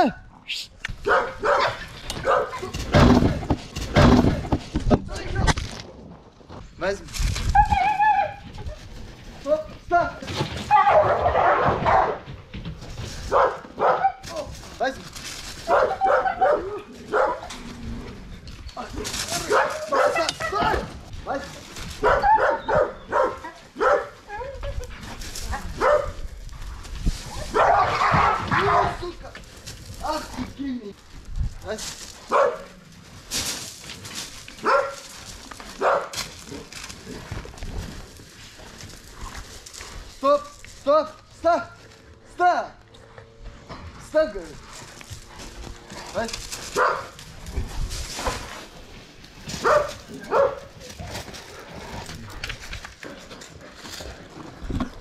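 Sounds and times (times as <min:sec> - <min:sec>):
dogs barking: 0:01.0 - 0:03.3, 0:10.7 - 0:12.3, 0:13.2 - 0:14.3, 0:15.6 - 0:17.5, 0:19.4 - 0:20.9, 0:22.0 - 0:24.6, 0:25.5 - 0:26.3, 0:27.5 - 0:29.0, 0:32.3 - 0:32.8, 0:34.6 - 0:35.1, 0:35.8 - 0:36.3, 0:46.6 - 0:47.3, 0:49.5 - 0:51.0.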